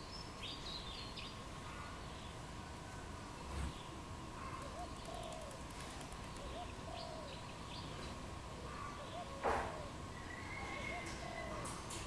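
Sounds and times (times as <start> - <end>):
small birds chirping: 0.0 - 2.5, 3.2 - 11.9
dove cooing: 4.4 - 7.4, 8.6 - 11.8.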